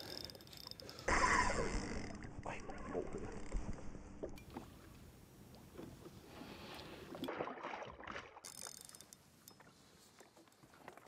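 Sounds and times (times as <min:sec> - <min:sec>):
water lapping: 0:01.8 - 0:11.0
fish splashing at the surface: 0:07.2 - 0:08.6.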